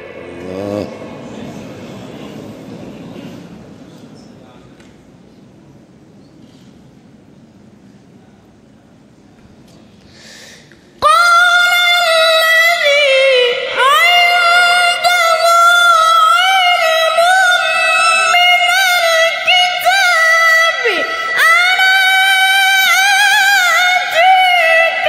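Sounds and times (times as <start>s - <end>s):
person reciting in high voice: 11.0s - 25.0s.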